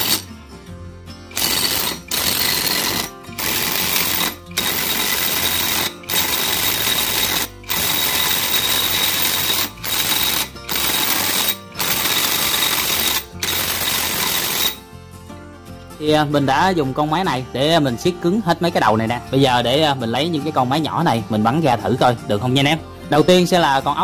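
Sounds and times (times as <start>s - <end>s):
impact wrench hammering: 0.0s - 0.3s, 1.3s - 14.8s.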